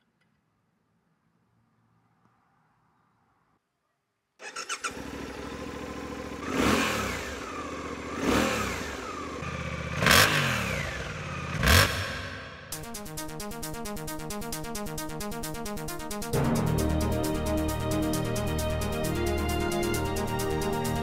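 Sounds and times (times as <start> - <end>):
engine throttle blips: 4.4 - 12.8
motorcycle engine idling: 4.4 - 12.8
motorcycle engine starting: 4.4 - 13.0.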